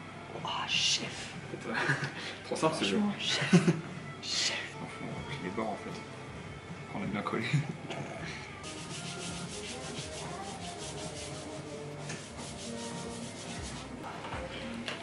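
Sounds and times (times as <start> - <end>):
hands rubbing pastry dough: 8.6 - 14.0.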